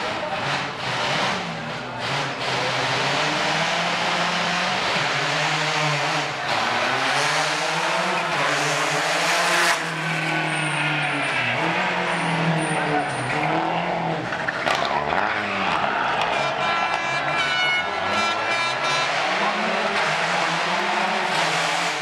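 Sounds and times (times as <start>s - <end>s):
rally car engine revving: 0.0s - 22.0s.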